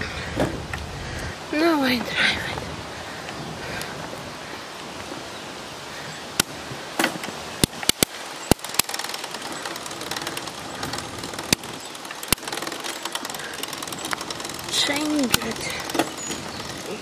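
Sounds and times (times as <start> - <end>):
steady background hiss: 0.0 - 17.0
bicycle gear shifter clicking: 6.4 - 17.0.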